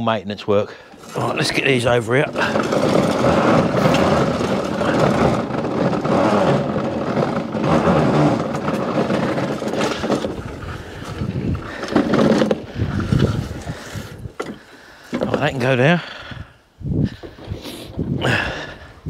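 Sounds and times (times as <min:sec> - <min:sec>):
lawnmowers rattling over paving: 0:00.8 - 0:16.4.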